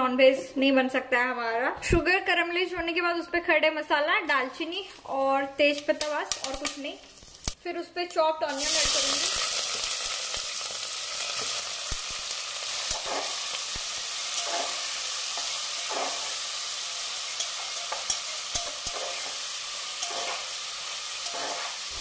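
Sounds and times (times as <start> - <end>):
onions sizzling in hot oil: 5.6 - 7.6, 8.4 - 22.0
spatula scraping and clicking on pot: 17.4 - 19.4, 20.0 - 20.5.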